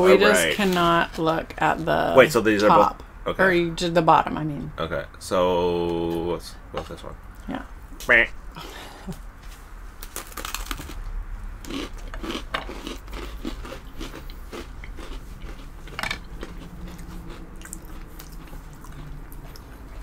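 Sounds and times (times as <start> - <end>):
chewing crunches: 10.0 - 20.0
cookies crunching: 10.0 - 20.0.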